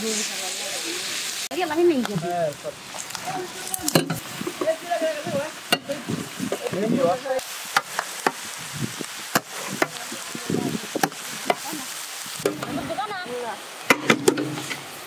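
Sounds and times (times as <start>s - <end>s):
light frying sizzle: 0.0s - 15.0s.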